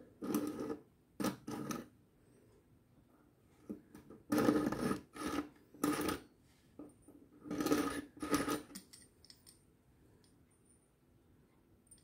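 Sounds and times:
knife grating on sharpener: 4.4s - 6.2s, 7.5s - 8.7s.

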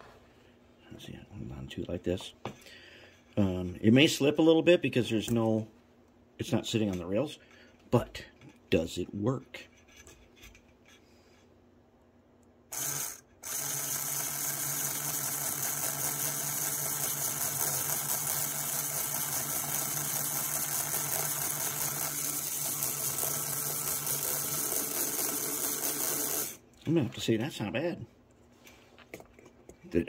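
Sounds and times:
model train motor and gears running: 12.7s - 26.6s.

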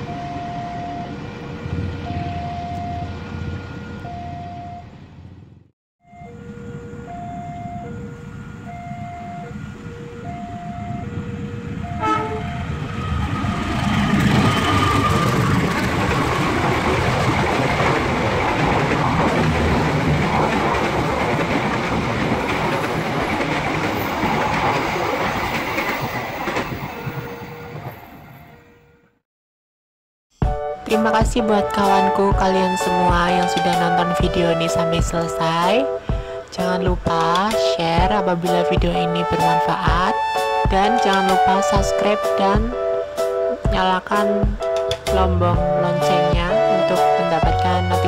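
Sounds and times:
level-crossing signal two-tone: 0.0s - 1.2s, 2.0s - 5.0s, 6.0s - 15.6s
train wheels clattering over rails: 13.6s - 26.8s.

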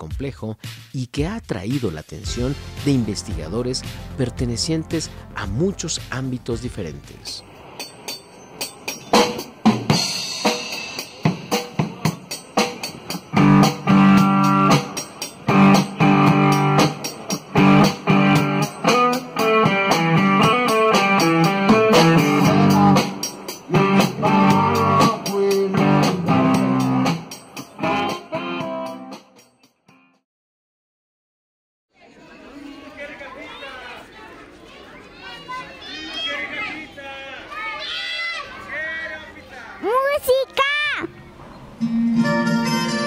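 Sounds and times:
drum kit: 0.0s - 29.5s
electric guitar: 11.5s - 29.2s, 41.8s - 43.0s.

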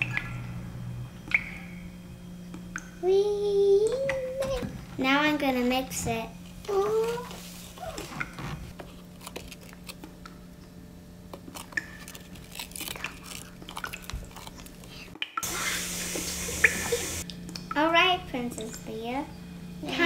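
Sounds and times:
low steady hum: 0.0s - 20.0s
loud hiss: 15.4s - 17.2s.

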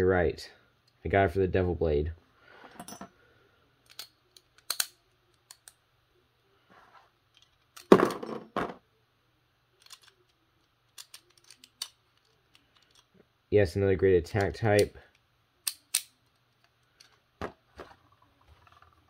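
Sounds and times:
plastic toy parts clicking: 3.8s - 5.8s, 9.8s - 13.1s, 15.6s - 17.2s.

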